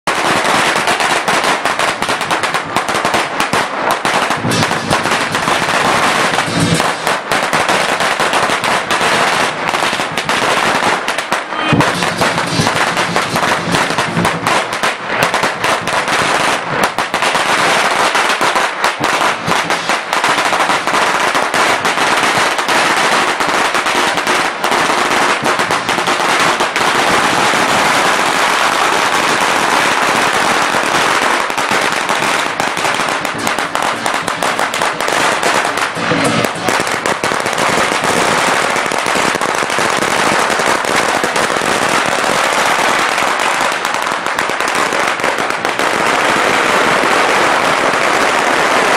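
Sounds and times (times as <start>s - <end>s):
firecrackers crackling: 0.0s - 48.9s.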